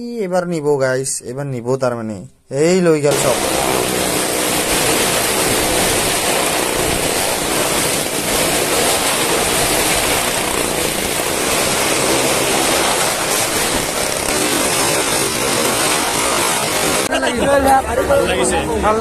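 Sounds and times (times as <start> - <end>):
car and motorcycle engines revving: 3.1 - 17.1.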